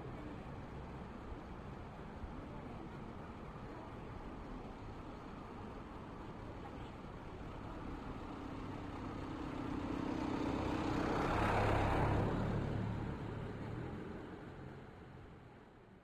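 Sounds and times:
vehicle driving past: 9.7s - 13.5s.

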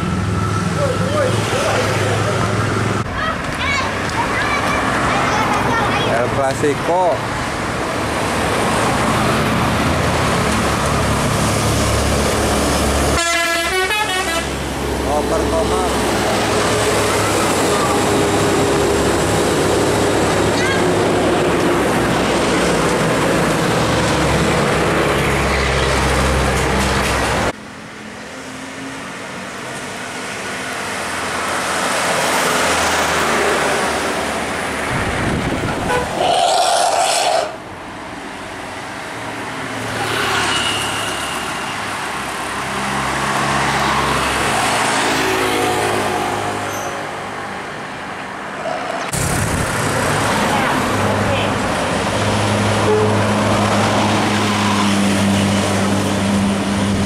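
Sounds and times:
cars driving by: 0.0s - 57.0s
bus engine pulling away: 48.8s - 57.0s.

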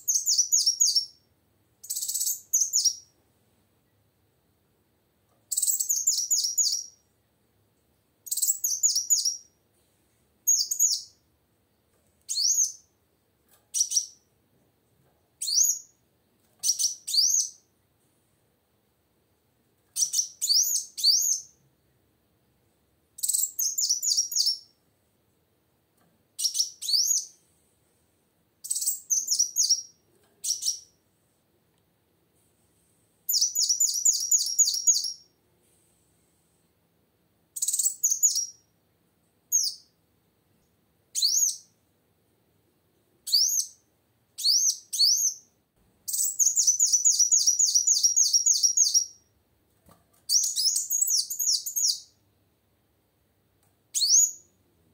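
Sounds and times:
sunbird chirping song: 0.0s - 1.2s, 1.8s - 3.2s, 5.5s - 7.0s, 8.2s - 9.6s, 10.4s - 11.2s, 12.3s - 12.9s, 13.7s - 14.3s, 16.6s - 17.7s, 20.0s - 21.6s, 23.2s - 24.7s, 28.6s - 31.0s, 33.3s - 35.3s, 37.6s - 38.7s, 46.1s - 49.3s, 50.3s - 52.2s, 53.9s - 54.6s.

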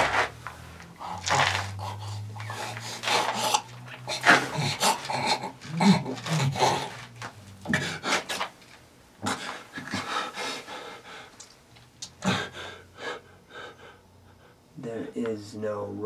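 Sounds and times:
man breathing hard: 0.9s - 5.5s, 7.7s - 8.4s, 9.2s - 11.5s, 12.2s - 14.7s.

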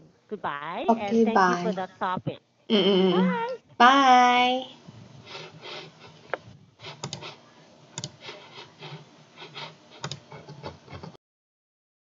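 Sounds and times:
computer mouse double-clicks: 7.0s - 7.3s, 8.0s - 8.2s, 10.0s - 10.7s.

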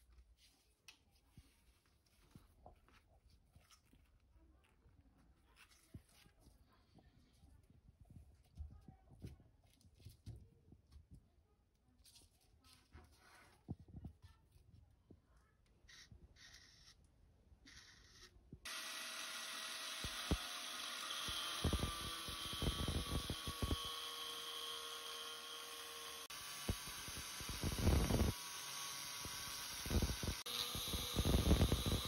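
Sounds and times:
grinder cutting steel: 17.7s - 32.0s
angle grinder whine: 18.7s - 32.0s.

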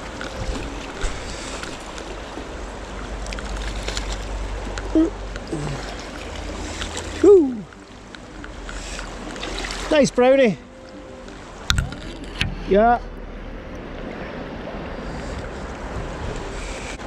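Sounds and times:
river rushing over stones: 0.0s - 13.0s.

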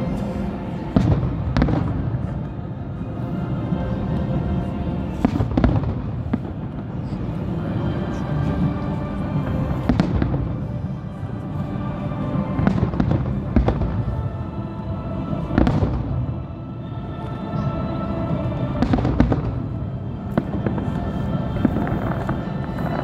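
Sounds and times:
music: 0.0s - 23.0s
fireworks bursting: 18.8s - 23.0s.

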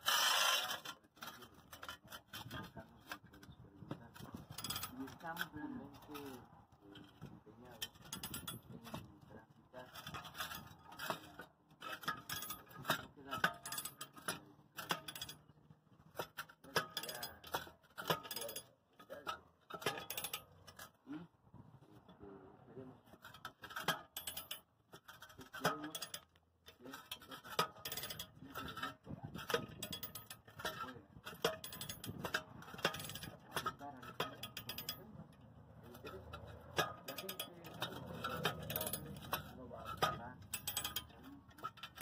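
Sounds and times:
metallic clicks and clinks: 4.1s - 6.4s, 7.0s - 9.1s, 9.9s - 15.5s, 16.2s - 21.0s, 23.2s - 42.0s.

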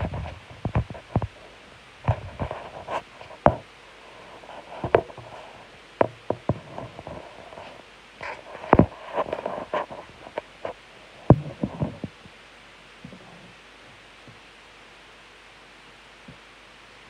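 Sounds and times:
scraping on plastic: 0.0s - 1.4s, 2.0s - 12.2s.

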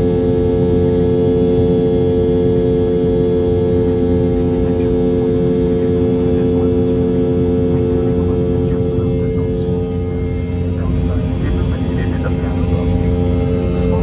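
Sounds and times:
jet engine hum in cabin: 0.0s - 14.0s.

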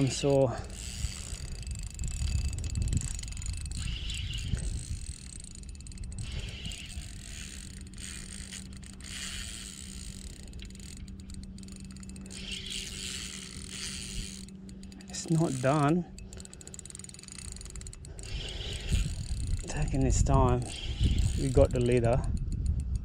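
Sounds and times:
wind rumble on microphone: 0.0s - 15.4s, 17.4s - 23.0s
fishing reel ticking and whirring: 0.0s - 23.0s.

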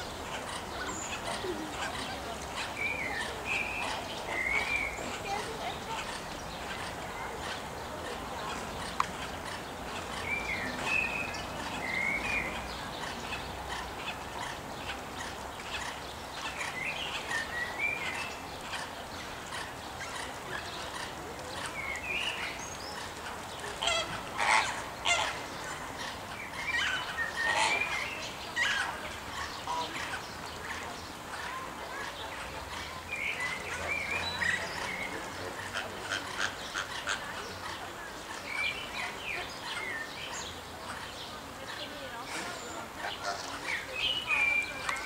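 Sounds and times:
flamingos honking: 22.4s - 41.2s.

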